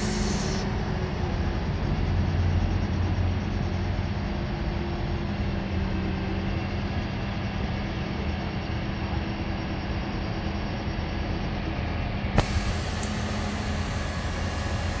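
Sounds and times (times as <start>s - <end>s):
truck engine running: 0.0s - 3.9s, 12.4s - 15.0s.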